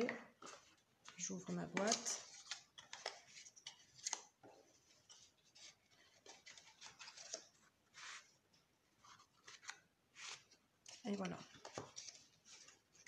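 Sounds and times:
card and paper rustling: 0:00.0 - 0:13.0.

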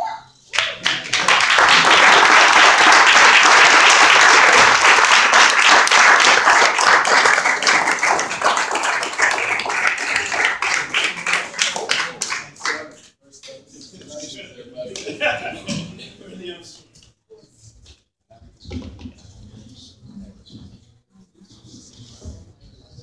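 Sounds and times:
people applauding: 0:00.5 - 0:13.1.

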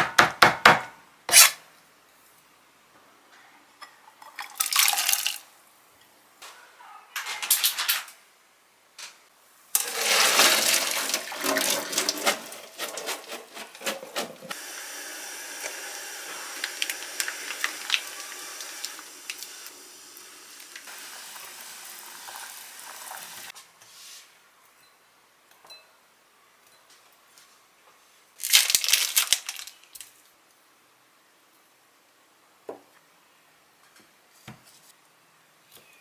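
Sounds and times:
water splashing in a saucepan: 0:04.2 - 0:05.4, 0:09.8 - 0:13.3, 0:14.5 - 0:23.5
boiling water bubbling: 0:09.8 - 0:13.0, 0:14.5 - 0:23.5.

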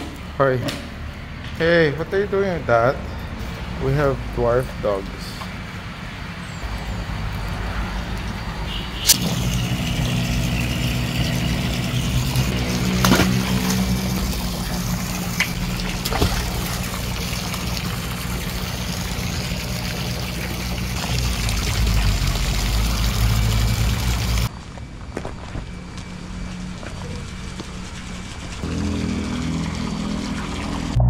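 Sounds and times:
air pump humming: 0:09.0 - 0:24.5.

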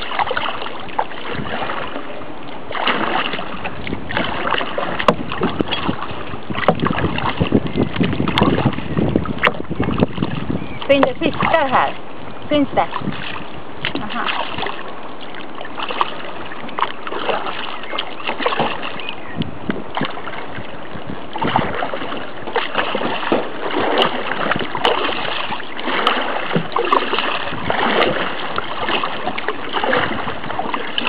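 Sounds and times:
paddle splashing in water: 0:00.0 - 0:31.0
water washing along hull: 0:00.0 - 0:31.0.

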